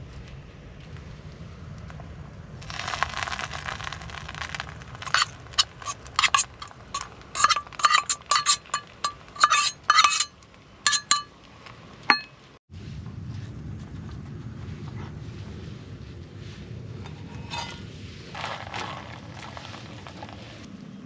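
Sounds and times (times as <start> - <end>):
spoon scraping metal cup: 4.0 - 11.3, 17.0 - 20.4.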